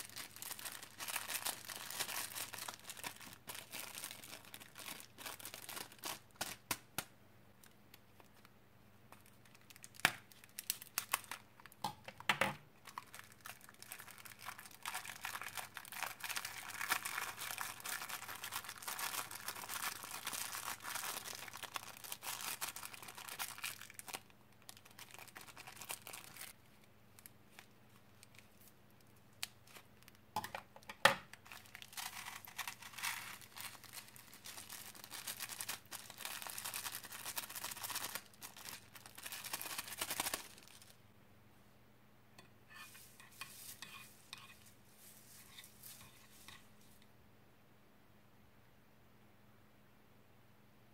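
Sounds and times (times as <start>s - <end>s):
plastic bags crinkling and tearing: 0.0s - 6.8s, 9.1s - 11.8s, 12.8s - 28.7s, 31.3s - 41.0s.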